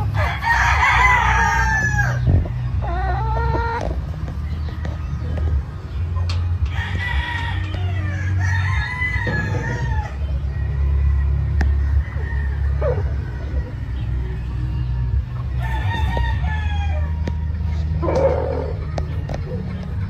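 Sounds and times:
music with deep bass: 0.0 - 20.0
rooster crowing: 0.1 - 2.3, 6.7 - 10.2, 11.7 - 13.9, 15.6 - 18.6.

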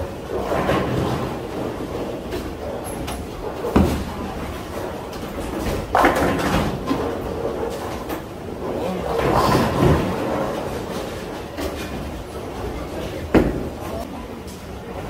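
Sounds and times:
bowling ball rolling: 0.0 - 14.0
bowling alley machinery rumble: 0.0 - 15.0
ball crashing into pins: 5.3 - 7.9.

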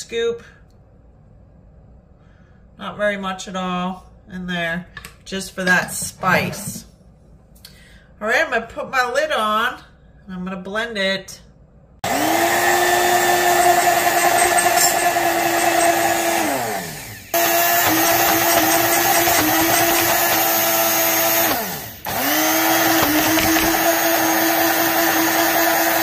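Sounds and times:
blender motor whining: 12.0 - 26.0.

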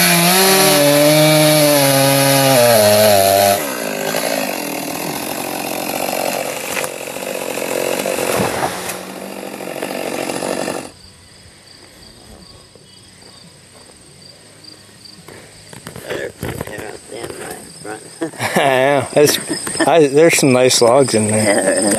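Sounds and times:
chainsaw cutting into wood: 0.0 - 11.0
faint insects chirping: 10.9 - 21.9.

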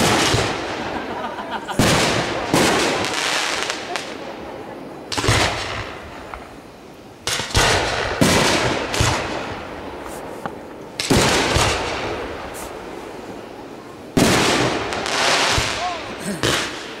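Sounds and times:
firework booms with rolling echo: 0.0 - 17.0.

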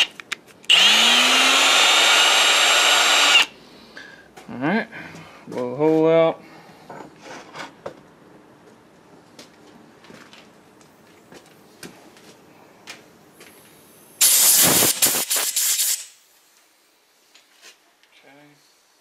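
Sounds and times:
pressurised jet hissing: 14.2 - 16.2.

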